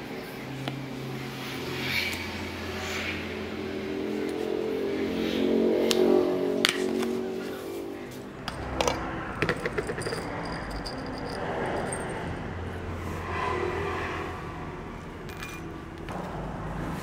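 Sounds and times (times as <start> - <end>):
seeds rattling against a glass jar: 9.4 - 12.4.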